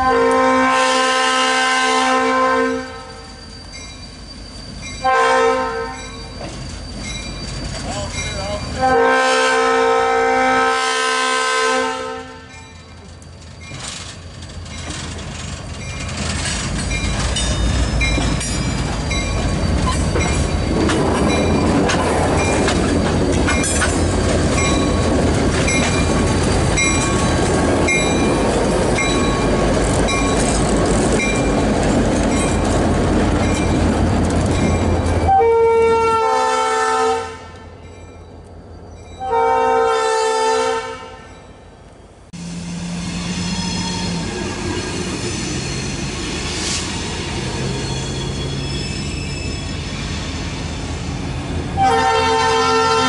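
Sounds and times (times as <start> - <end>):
locomotive air horn blasts: 0.0 - 3.4, 5.0 - 6.2, 8.8 - 12.6, 35.3 - 37.8, 39.2 - 41.4, 51.8 - 53.0
wheels clicking over rail joints: 12.7 - 35.3
diesel locomotive engine running: 42.2 - 53.0.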